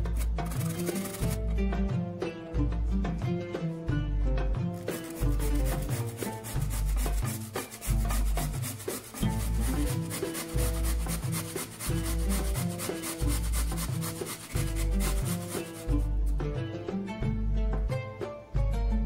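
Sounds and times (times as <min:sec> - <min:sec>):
carrot grating on metal grater: 0:00.0 - 0:01.4, 0:04.8 - 0:16.1
background music with deep beat: 0:00.0 - 0:19.0.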